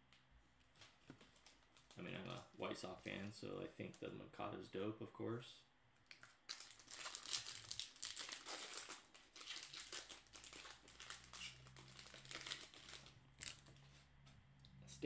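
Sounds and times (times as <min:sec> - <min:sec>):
foil wrapper tearing and crinkling: 0:06.1 - 0:13.7.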